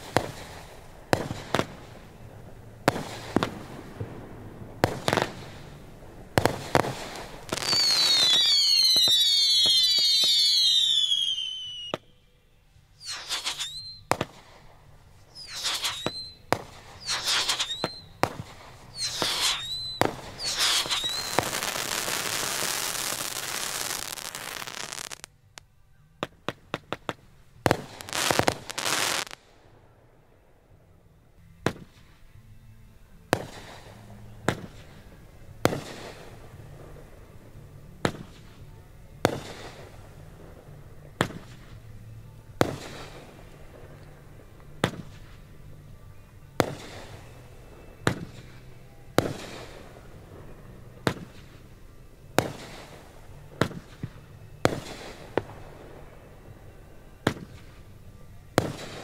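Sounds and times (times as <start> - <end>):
firework bangs: 0.0 - 12.0, 13.0 - 25.3, 26.4 - 29.4, 33.3 - 37.0, 42.6 - 45.4, 46.6 - 51.7, 52.3 - 56.4, 57.1 - 59.0
firework crackling: 0.0 - 12.2, 12.9 - 29.5, 33.3 - 46.0, 46.6 - 59.0
firework whistles: 6.4 - 12.3, 12.9 - 25.3, 27.7 - 29.4.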